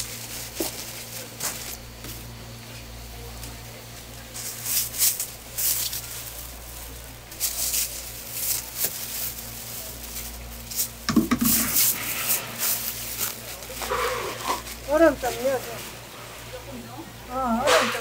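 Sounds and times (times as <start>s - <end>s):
plastic bag crinkling: 0.0s - 1.9s, 4.2s - 16.1s
low electrical hum: 0.0s - 18.0s.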